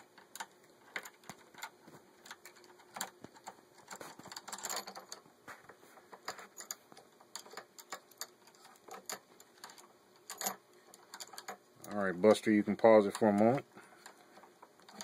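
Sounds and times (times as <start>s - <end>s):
small metal hardware clicking: 6.4s - 15.0s.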